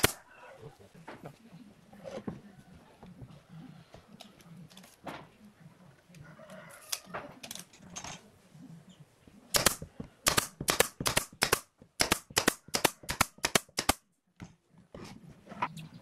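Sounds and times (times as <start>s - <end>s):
nail gun shots: 0.0s - 0.2s, 9.5s - 14.0s.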